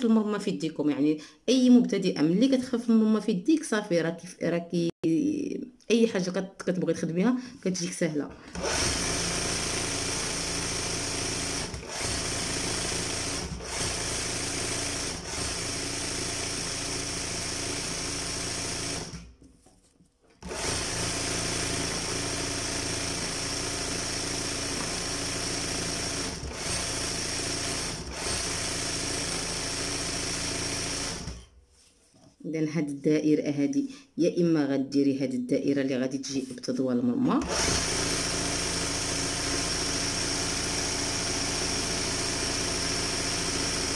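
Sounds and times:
sewing machine running: 0:08.3 - 0:19.3, 0:20.4 - 0:31.5, 0:37.4 - 0:43.9.

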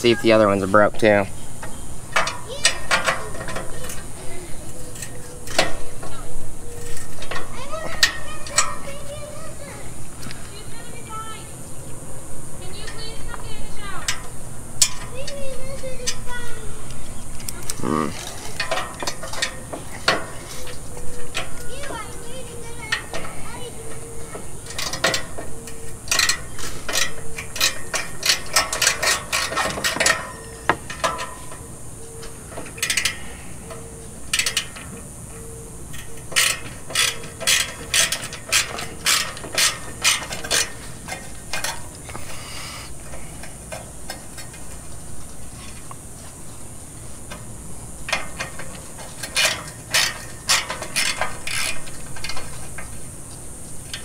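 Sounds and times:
socket ratchet clicking: 0:23.9 - 0:31.6, 0:35.9 - 0:42.7.

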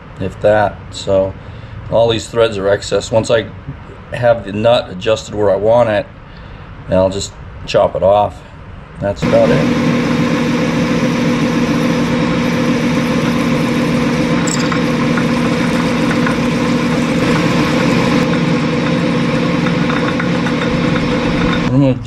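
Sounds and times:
drill scraping metal: 0:09.2 - 0:21.7
lathe motor hum: 0:09.2 - 0:21.7.

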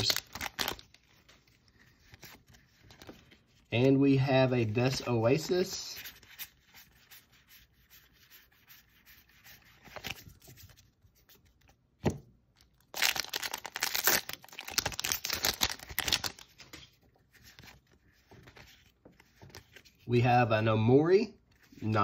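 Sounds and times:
foil wrapper tearing: 0:00.0 - 0:01.0, 0:12.8 - 0:16.5
cards rubbing: 0:04.6 - 0:11.6.

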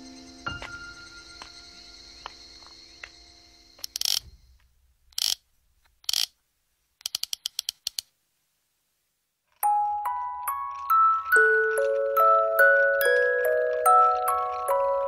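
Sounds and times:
ratchet-like clicks: 0:03.8 - 0:04.2, 0:05.1 - 0:05.4, 0:06.0 - 0:06.4, 0:07.0 - 0:08.1
soft background music: 0:09.6 - 0:15.0.

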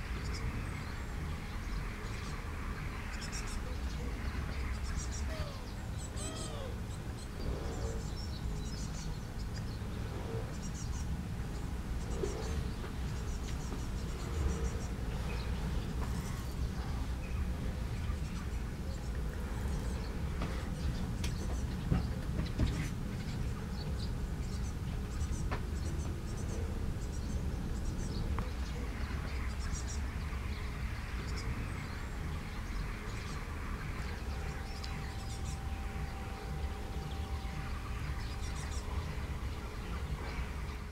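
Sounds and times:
songbirds chirping: 0:00.0 - 0:40.9
steady low rumble: 0:00.0 - 0:40.9
fledgling begging calls: 0:03.1 - 0:07.3.

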